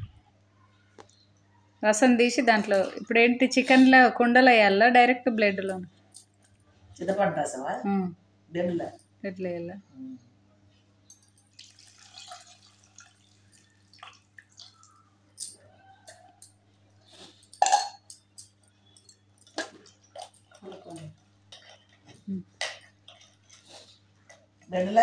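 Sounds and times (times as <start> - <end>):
water pouring into bowl: 11.5 - 15.0
steel vessels clinking: 17.4 - 20.7.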